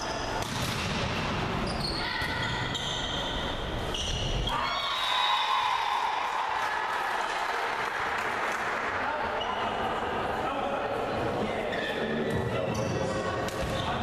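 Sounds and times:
shoe squeaks: 0:01.6 - 0:04.5, 0:11.7 - 0:14.0.

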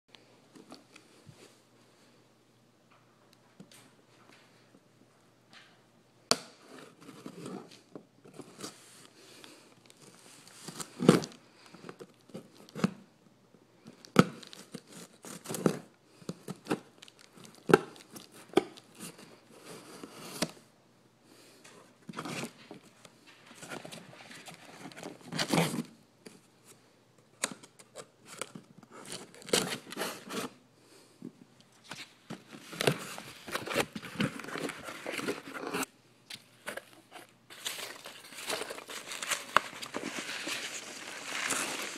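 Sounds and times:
paper packing crinkling: 0:31.9 - 0:35.9, 0:36.6 - 0:41.9.

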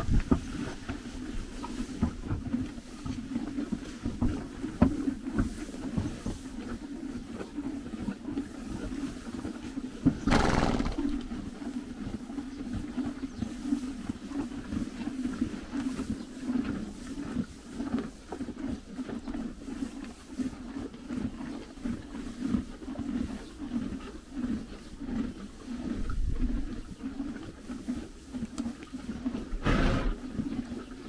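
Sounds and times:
ponies chewing hay: 0:00.0 - 0:31.0
horse blowing: 0:10.1 - 0:11.4, 0:29.4 - 0:30.4.

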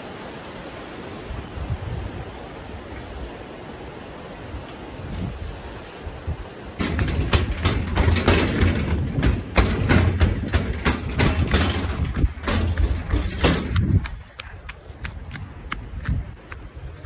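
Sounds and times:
river water rushing: 0:00.0 - 0:08.8
knocks and thumps on footbridge: 0:06.8 - 0:16.6.

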